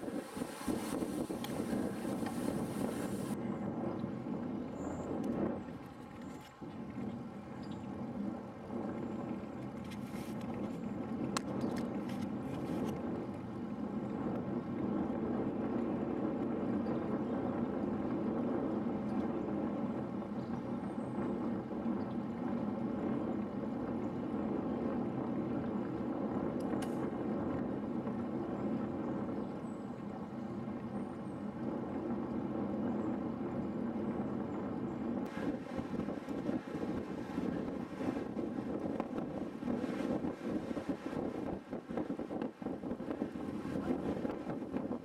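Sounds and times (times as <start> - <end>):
bike tyres on asphalt: 0.0 - 3.4
wind rushing over microphone: 0.0 - 45.0.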